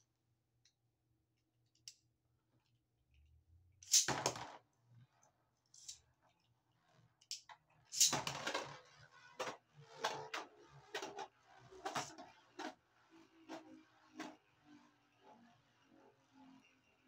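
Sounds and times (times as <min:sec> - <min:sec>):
spinning tops clacking: 0:03.8 - 0:04.6, 0:07.9 - 0:08.7
faint whir of spinning tops: 0:06.9 - 0:16.4.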